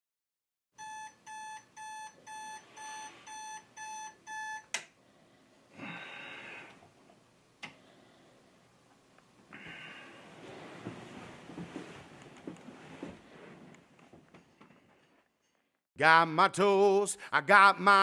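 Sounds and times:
alarm clock beeping: 0.8s - 4.7s.

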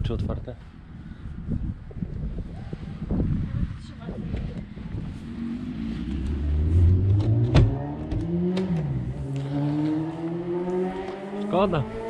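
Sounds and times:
engine accelerating: 4.7s - 12.0s.

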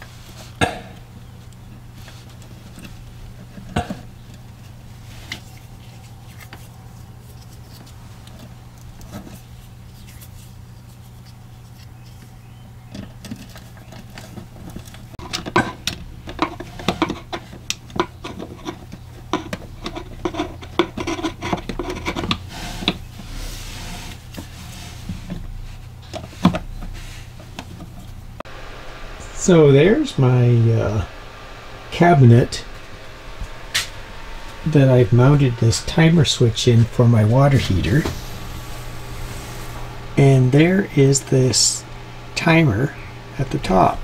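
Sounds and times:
metal scraping on wood: 13.4s - 28.2s
rubbing: 18.2s - 28.4s.

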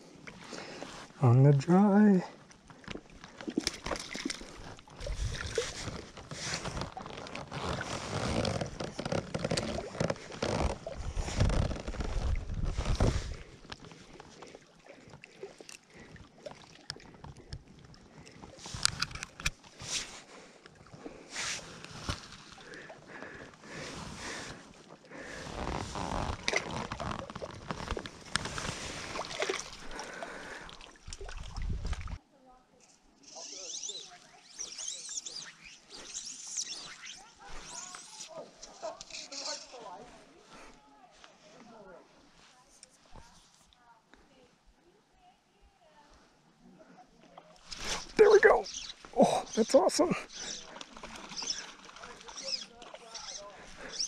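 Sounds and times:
small water splashes: 2.4s - 6.0s, 13.4s - 18.6s, 28.2s - 32.2s, 50.2s - 54.0s
wind rumbling on microphone: 11.0s - 13.4s, 31.3s - 32.2s
water splashing around a net: 25.5s - 32.2s, 50.3s - 54.0s.

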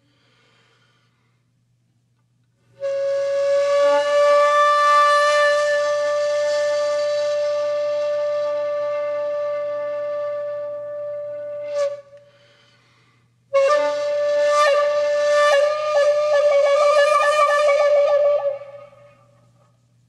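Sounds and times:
flute music: 2.8s - 12.3s, 13.5s - 19.5s.

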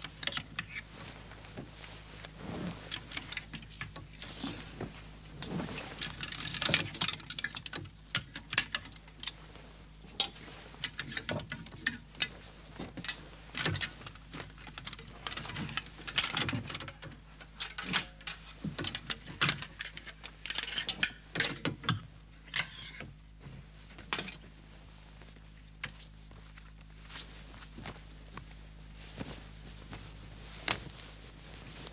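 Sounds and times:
fabric rustling: 0.6s - 7.0s, 23.4s - 31.9s
hangers clacking on a rail: 5.8s - 9.4s, 13.0s - 23.1s.

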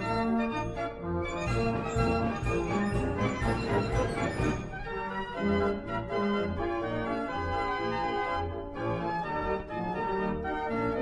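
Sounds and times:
organ music: 0.0s - 11.0s.

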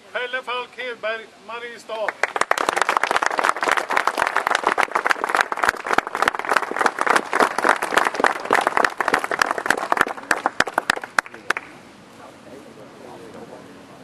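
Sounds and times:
audience applauding: 2.1s - 11.7s.

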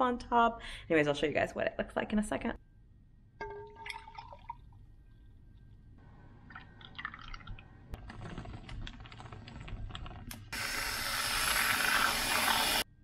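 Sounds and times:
hot chocolate pouring into mug: 6.5s - 10.2s
aerosol whipped cream spraying: 10.5s - 12.8s.

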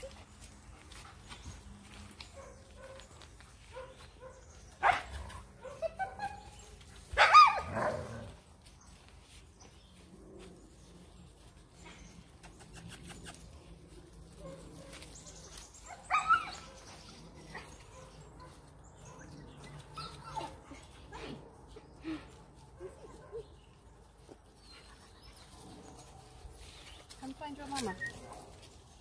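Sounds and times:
puppies yipping and whining: 4.8s - 8.2s, 15.8s - 21.4s.

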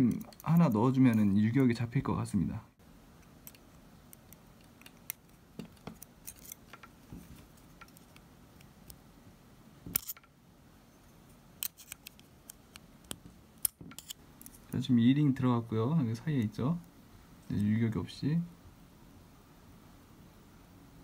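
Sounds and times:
small metal parts clicking: 0.0s - 1.8s.

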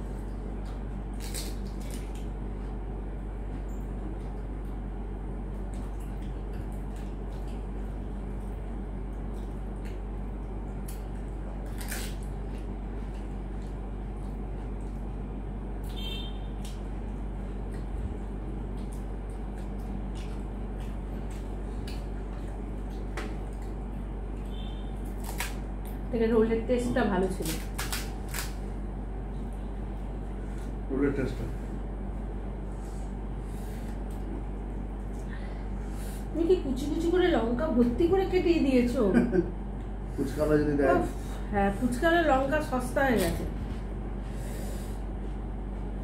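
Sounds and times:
steady low hum: 0.0s - 46.0s
crisp shells crunching: 1.1s - 2.3s, 27.4s - 28.6s.

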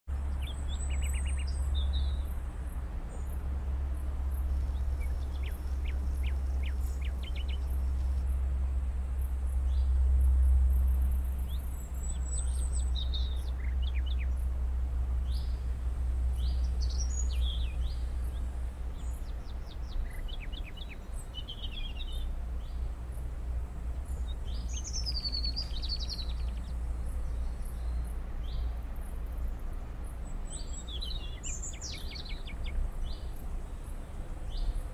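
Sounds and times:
small birds chirping and trilling: 0.1s - 34.9s
steady low rumble: 0.1s - 34.9s
sweeping bird calls: 0.2s - 2.4s, 4.3s - 8.4s, 10.8s - 14.5s, 16.3s - 22.9s, 23.9s - 34.9s.

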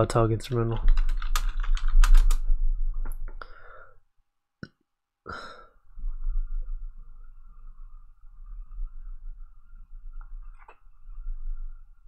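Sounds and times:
keyboard typing and clicking: 0.5s - 2.4s.

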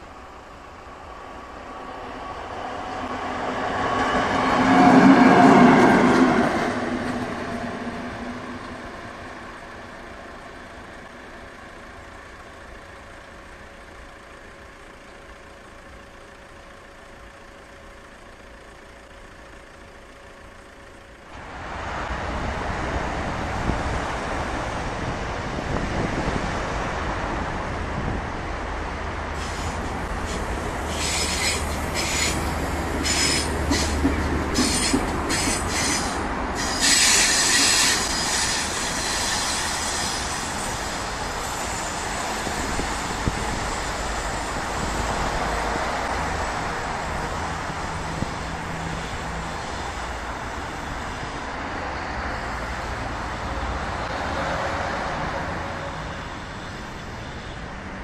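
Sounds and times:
diesel locomotive engine: 0.0s - 58.0s
train wheels squealing: 29.4s - 45.2s.

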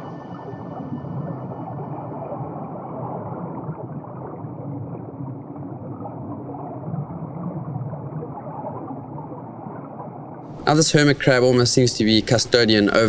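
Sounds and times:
muffled underwater rush: 0.0s - 13.0s.

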